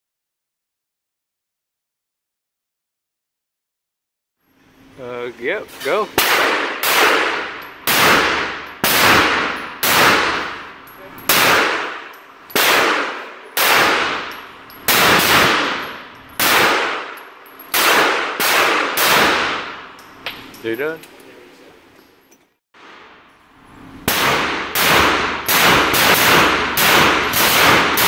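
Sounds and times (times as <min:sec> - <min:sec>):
pistol shots echoing: 0:06.2 - 0:19.9, 0:24.1 - 0:28.0.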